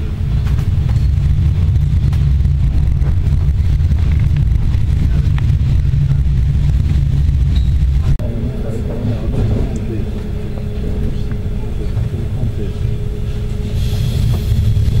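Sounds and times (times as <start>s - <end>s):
train rumbling at speed: 0.0s - 15.0s
wheels clicking on rails: 0.0s - 15.0s.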